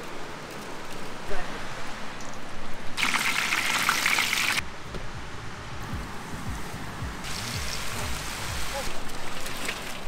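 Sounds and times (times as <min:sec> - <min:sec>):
hot oil sizzling and crackling: 0:03.0 - 0:04.6
low rumble: 0:05.0 - 0:08.7.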